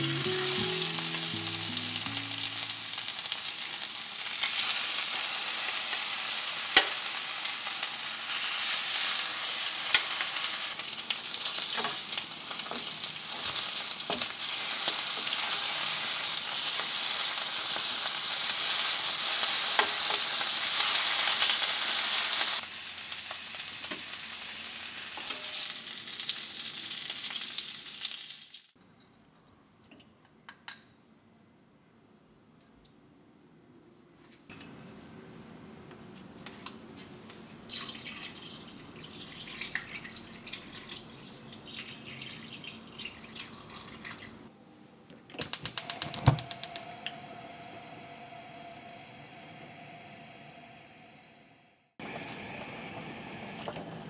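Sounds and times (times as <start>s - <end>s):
ribs sizzling in oil: 0.0s - 28.7s.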